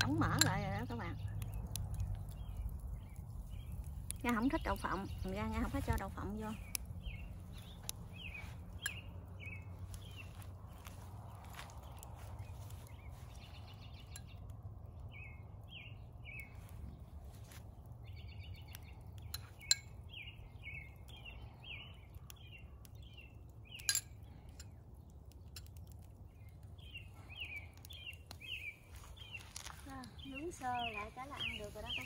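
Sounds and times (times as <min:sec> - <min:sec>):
songbird chirping: 0:00.0 - 0:32.0
metal spoon clinking on bowl: 0:23.8 - 0:24.8.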